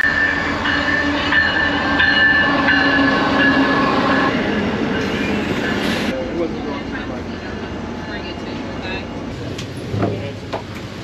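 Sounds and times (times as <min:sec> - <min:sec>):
train rumble: 0:00.0 - 0:11.0.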